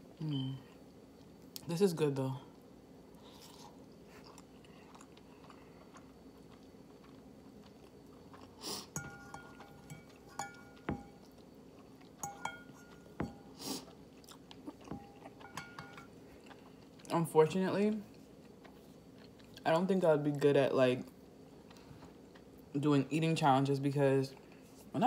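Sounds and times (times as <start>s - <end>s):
quiet chewing: 3.1s - 17.2s, 18.0s - 19.6s, 21.1s - 22.7s
fork clinking on ceramic bowl: 8.9s - 11.3s, 12.2s - 13.5s, 14.8s - 16.1s.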